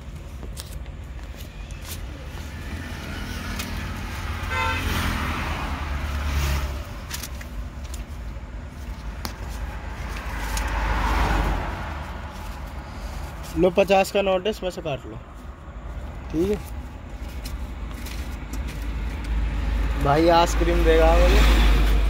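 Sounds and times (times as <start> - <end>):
road traffic passing: 0.0 - 22.0
car horn toot: 4.4 - 5.2
steady low rumble: 6.8 - 22.0.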